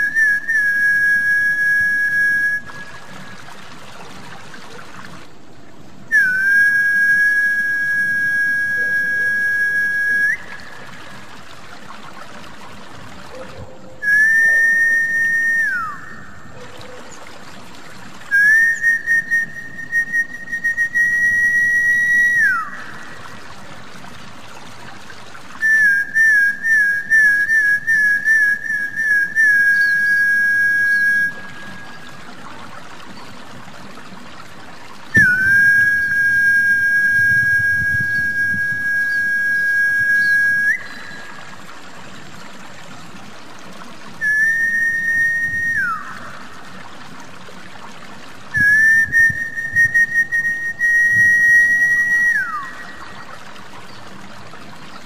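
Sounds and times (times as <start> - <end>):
whistled lure call: 0.0 - 3.5, 6.1 - 11.2, 13.3 - 17.4, 18.3 - 23.4, 25.6 - 32.4, 35.1 - 41.8, 44.1 - 46.7, 48.5 - 54.2
water trickling: 0.0 - 55.0.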